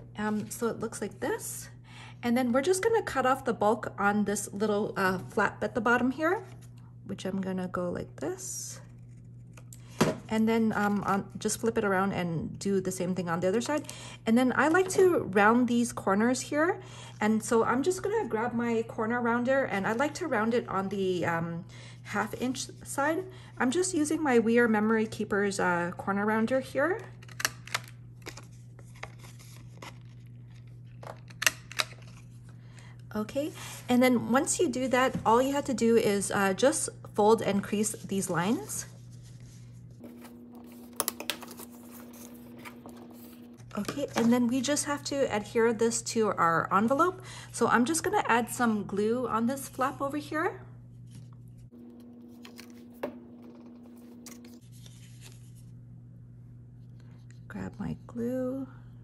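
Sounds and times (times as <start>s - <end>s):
paper handling: 27.0s - 32.5s, 37.8s - 44.6s, 51.1s - 55.6s
steady low hum: 27.8s - 59.0s.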